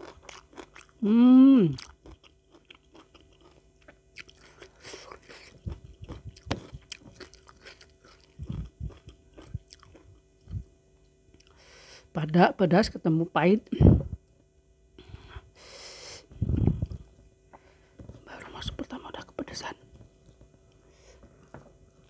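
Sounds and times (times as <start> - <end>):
chewing and crunching: 0.0 - 1.0, 1.7 - 10.7.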